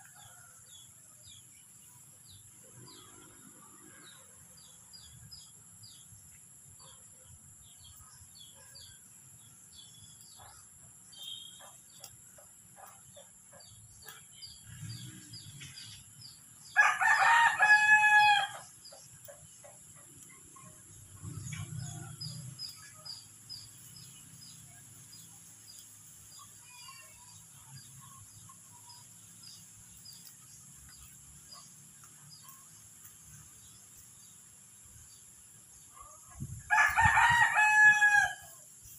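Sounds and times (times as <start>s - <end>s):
small bird chirps: 9.8s - 16.4s
rooster crowing: 16.7s - 18.7s, 36.7s - 38.5s.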